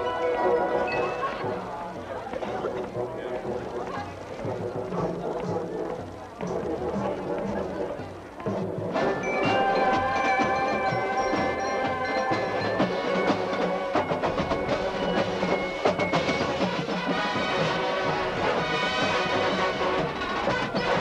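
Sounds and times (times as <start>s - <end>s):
drums and percussion: 0.0s - 21.0s
brass bugles holding chords: 8.9s - 14.2s, 16.5s - 21.0s.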